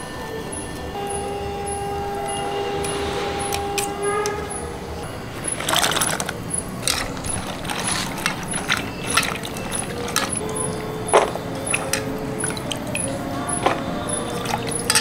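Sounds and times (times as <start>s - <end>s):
steady tone: 0.0s - 7.7s
faint high ticking: 0.0s - 15.0s
steel bowls clinking and clattering: 0.0s - 15.0s
beans handled in water: 5.4s - 15.0s.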